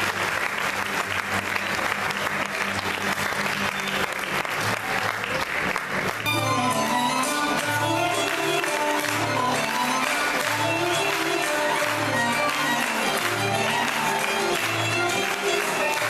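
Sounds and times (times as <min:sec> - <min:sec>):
audience applauding: 0:00.0 - 0:16.0
instrumental music: 0:06.0 - 0:16.0.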